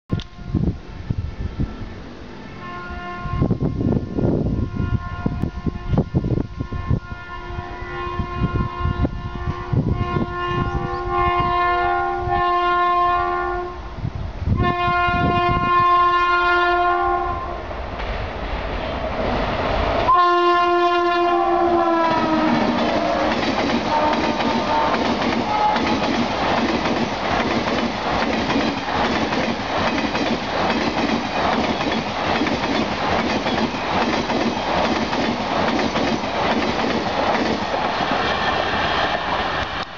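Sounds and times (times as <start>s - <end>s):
locomotive horn blasts: 2.4s - 13.9s, 14.6s - 17.6s, 20.1s - 25.9s
train coaches clattering past: 17.7s - 39.9s.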